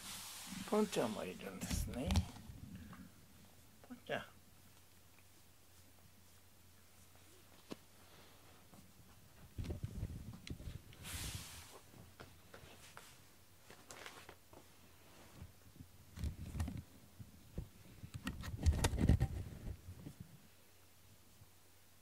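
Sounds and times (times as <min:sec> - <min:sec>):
close rustling: 0:00.0 - 0:02.5.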